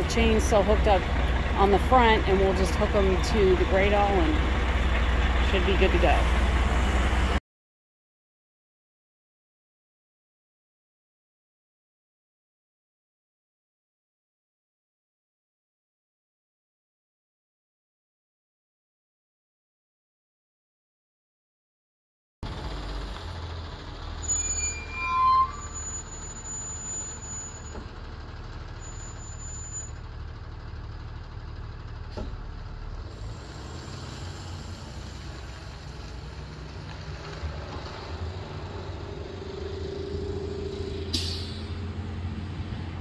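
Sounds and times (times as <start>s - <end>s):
diesel truck engine driving off: 0.0s - 7.4s, 22.4s - 43.0s
short high squeaks: 24.2s - 27.9s, 28.8s - 30.0s
brief hiss: 41.1s - 41.7s.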